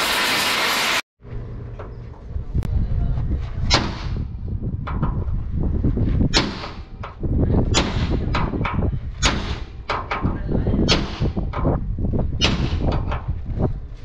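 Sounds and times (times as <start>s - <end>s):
low rumble: 0.1s - 14.0s
metal bangs on steel frame: 3.7s - 5.3s, 6.2s - 13.4s.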